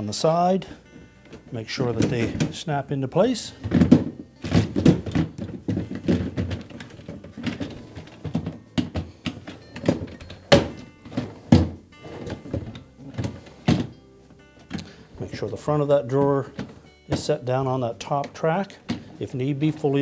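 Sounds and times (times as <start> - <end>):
plastic baskets knocking on metal rails: 3.6 - 13.9
hollow thunks: 3.6 - 14.0.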